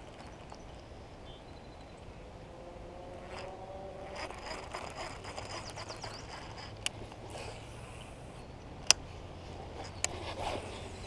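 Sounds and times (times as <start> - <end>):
reel gear whine: 3.0 - 8.4
rapid reel clicking: 3.3 - 7.4.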